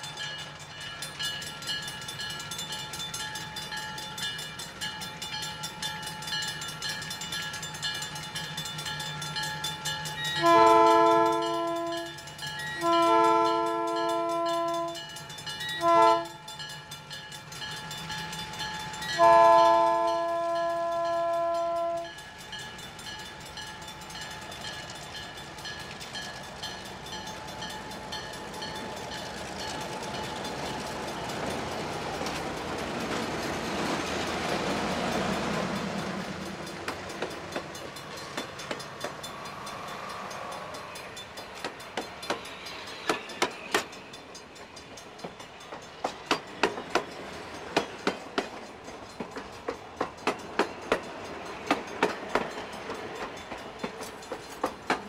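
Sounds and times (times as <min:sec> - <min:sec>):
crossing bell ringing: 0:00.0 - 0:55.0
locomotive air horn blasts: 0:10.4 - 0:12.1, 0:12.8 - 0:15.0, 0:15.8 - 0:16.4, 0:19.2 - 0:22.1.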